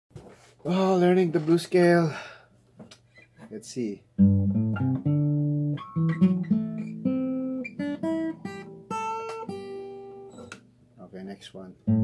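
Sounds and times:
acoustic guitar single notes: 4.2 - 10.8.

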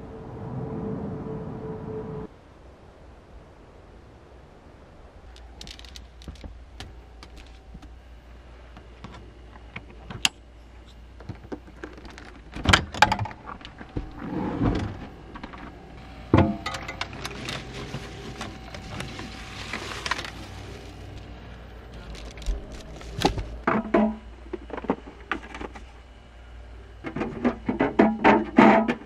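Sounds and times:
low steady hum: 0.0 - 29.0
plastic bag rustling: 5.3 - 7.8, 16.8 - 23.7.

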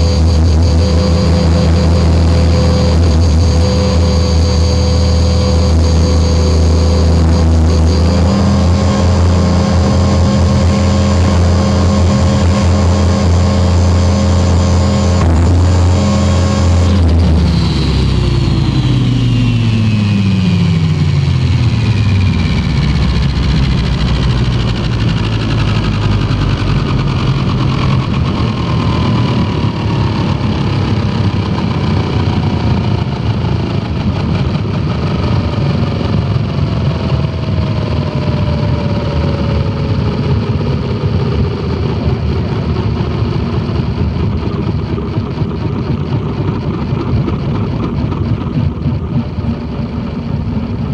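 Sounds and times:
rc helicopter rotor whine: 0.0 - 50.9.

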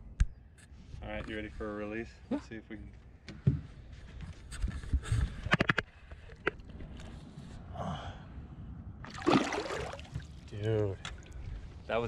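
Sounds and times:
water swishing: 9.0 - 10.6
water splash: 9.1 - 10.5.

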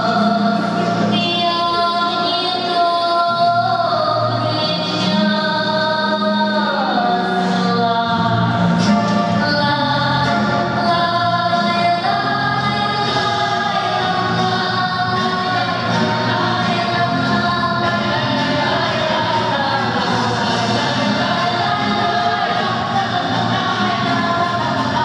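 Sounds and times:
choir singing held notes: 10.5 - 25.0.

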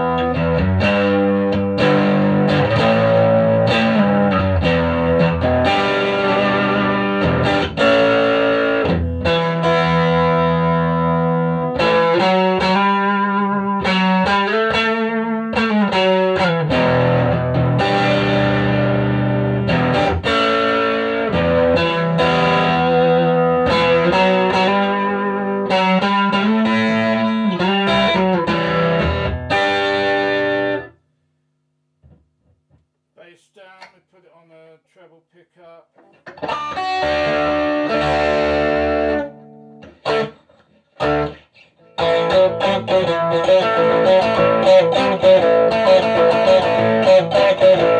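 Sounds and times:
electric guitar playing chords: 0.0 - 31.0, 36.0 - 47.9.

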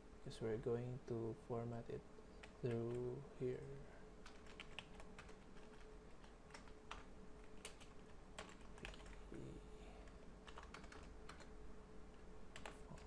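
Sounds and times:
steady low hum: 0.0 - 13.0
keyboard typing: 4.2 - 9.4, 10.0 - 11.5, 12.1 - 13.0.

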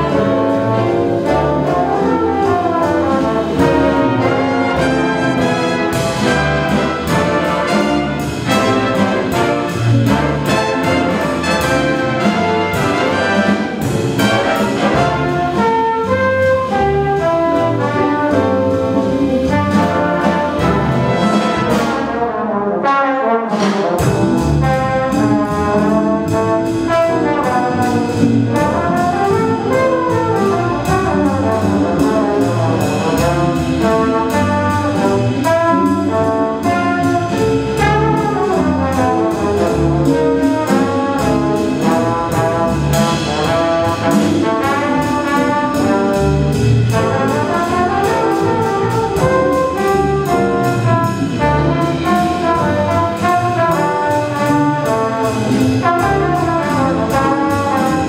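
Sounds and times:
big band playing jazz waltz: 0.0 - 58.0.

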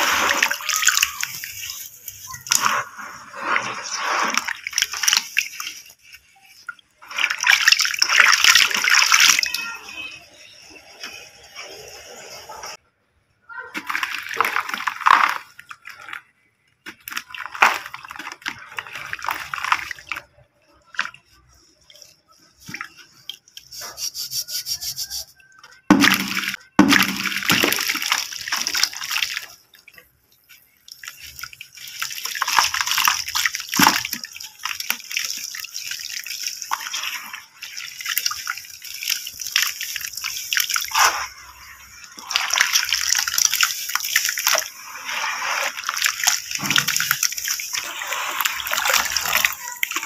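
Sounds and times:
hands splashing in muddy water: 25.9 - 29.6, 30.9 - 50.0.

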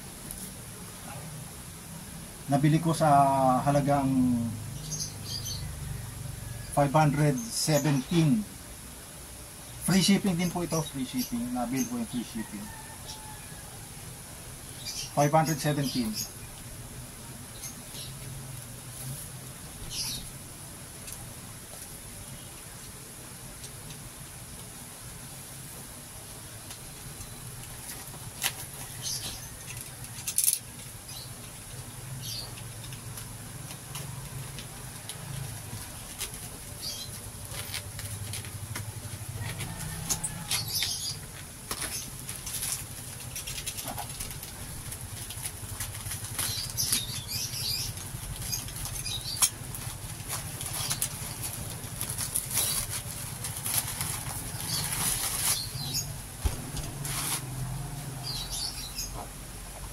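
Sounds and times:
plastic wrap rustling and crinkling: 26.7 - 59.0.

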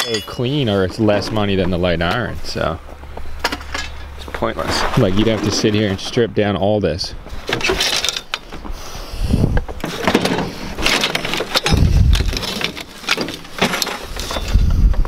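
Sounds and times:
scrap metal clanking and scraping: 0.0 - 6.3, 7.3 - 8.8, 9.7 - 14.8
low thumps: 11.7 - 12.4.

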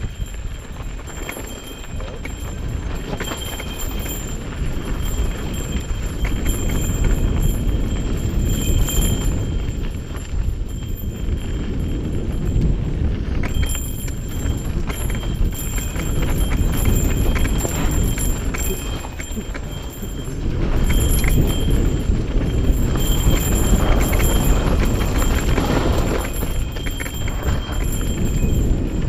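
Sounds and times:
bike rattling over bumps: 0.0 - 29.0
wind rushing on microphone: 0.0 - 29.0
tyres rolling over dirt: 14.4 - 28.2.

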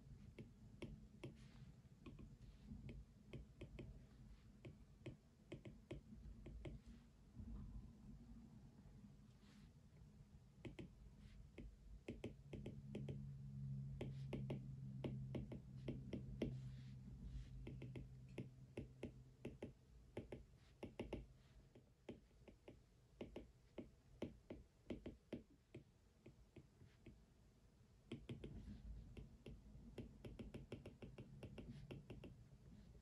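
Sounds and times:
low steady hum: 0.0 - 33.0
typing on computer keyboard: 29.2 - 32.4.

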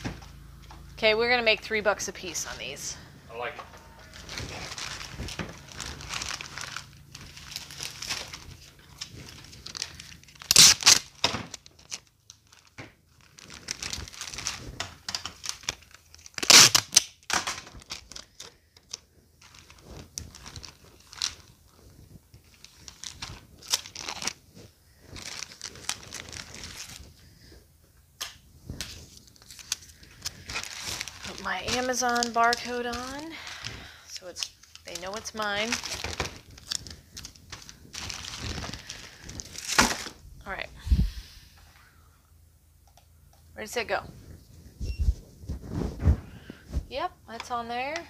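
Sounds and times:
plastic bags crinkling: 3.8 - 27.6, 28.6 - 40.6
loud tearing rasps: 4.0 - 12.1, 15.3 - 18.5.

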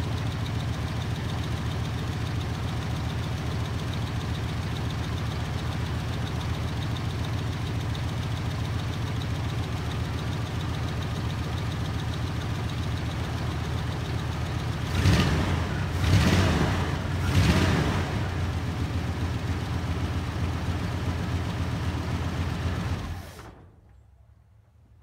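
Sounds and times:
car engine idling: 0.0 - 23.6
engine throttle blips: 11.5 - 24.0.

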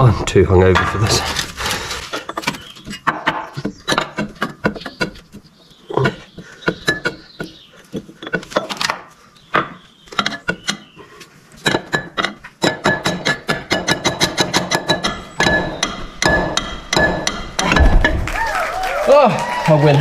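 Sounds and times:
hammer striking steel: 11.9 - 18.2.

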